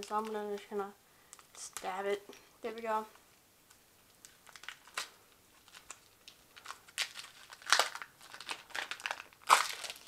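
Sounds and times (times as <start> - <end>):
candy wrapper crinkling and tearing: 4.1 - 10.0.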